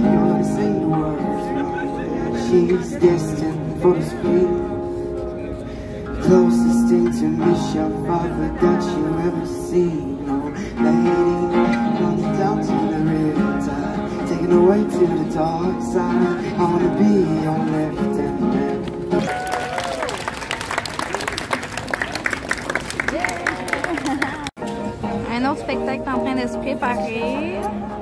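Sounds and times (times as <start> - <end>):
acoustic guitar strumming through speakers: 0.0 - 19.2.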